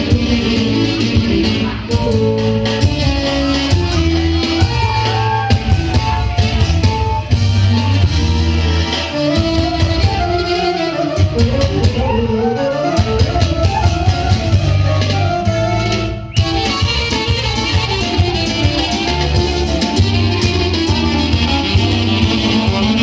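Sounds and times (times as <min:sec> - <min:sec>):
sliding lead melody: 0:00.0 - 0:23.0.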